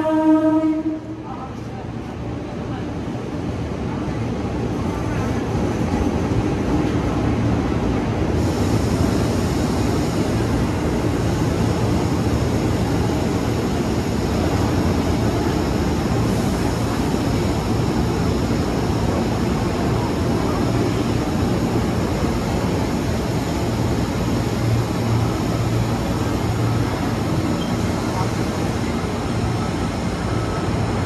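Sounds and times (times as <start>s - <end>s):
train rumble and rattle on track: 0.0s - 31.0s.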